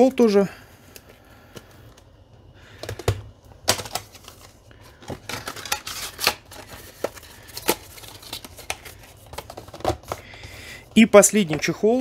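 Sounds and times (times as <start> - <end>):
cardboard packaging rustling: 2.9 - 11.8.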